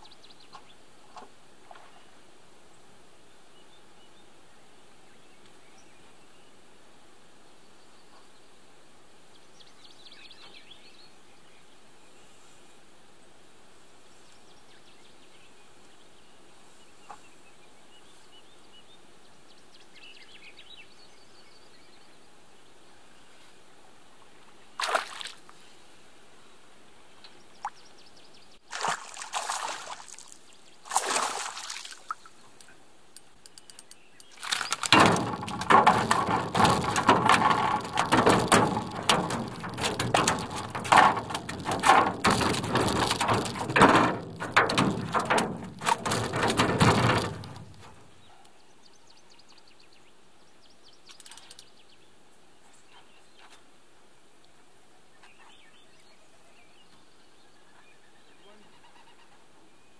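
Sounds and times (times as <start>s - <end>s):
water splashing and sloshing: 24.8s - 25.5s, 28.6s - 32.4s, 34.4s - 48.2s.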